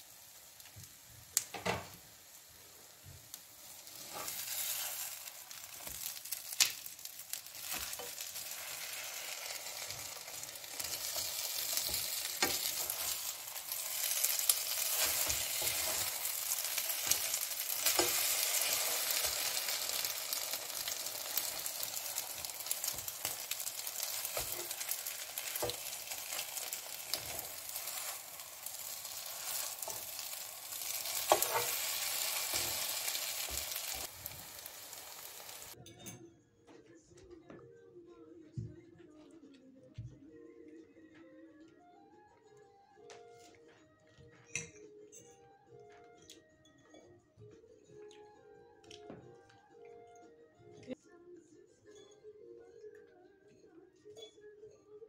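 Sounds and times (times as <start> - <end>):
food sizzling in a pan: 0.0 - 35.8.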